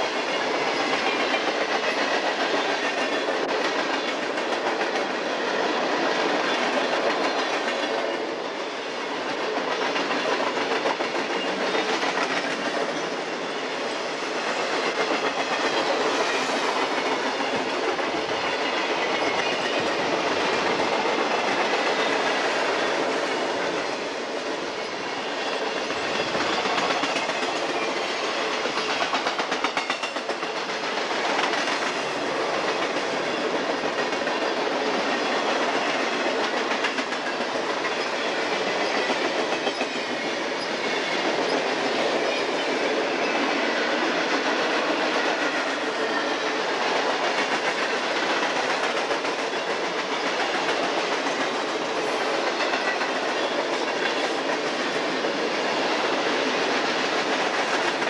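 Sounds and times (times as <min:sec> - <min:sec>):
steel wheels rumbling on rail: 0:00.0 - 0:58.0
rhythmic wheel clicks over rail joints: 0:24.9 - 0:42.9, 0:56.2 - 0:58.0.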